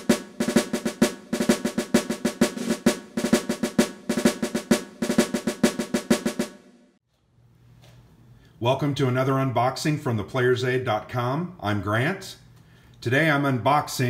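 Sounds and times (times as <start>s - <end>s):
snare drum cadence: 0.0s - 6.7s.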